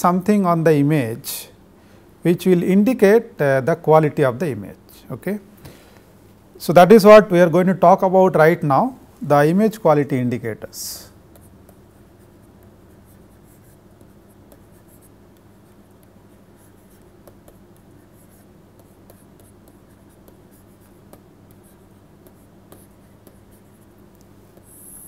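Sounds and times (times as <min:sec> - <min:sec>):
steady low hum: 0:00.0 - 0:25.0
stylus scratching on tablet: 0:10.7 - 0:25.0.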